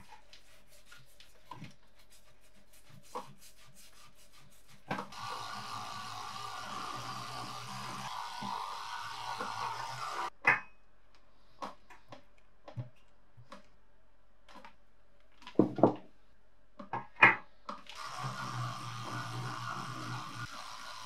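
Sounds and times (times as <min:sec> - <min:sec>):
electric toothbrush buzzing: 0:05.1 - 0:10.3, 0:18.0 - 0:21.0.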